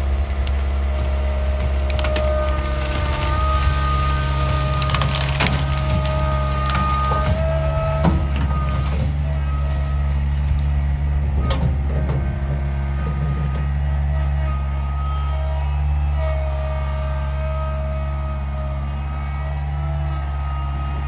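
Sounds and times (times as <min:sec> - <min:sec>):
brush and wood cracking: 0:00.0 - 0:10.9
machine whine: 0:00.0 - 0:21.0
skid steer engine running: 0:00.0 - 0:21.0.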